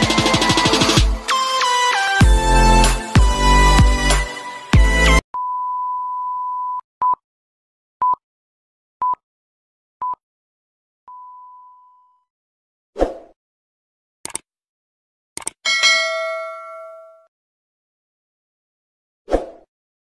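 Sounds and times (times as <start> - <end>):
electronic music: 0.0 - 5.2.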